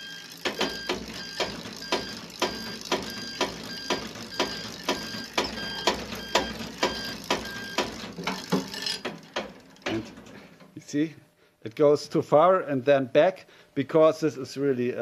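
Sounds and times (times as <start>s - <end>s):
short beeps with sharp clicks: 0.0s - 7.9s.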